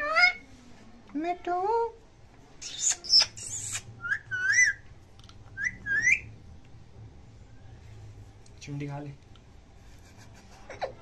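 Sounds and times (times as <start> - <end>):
parakeet screeching: 2.6 - 4.8, 5.6 - 6.3.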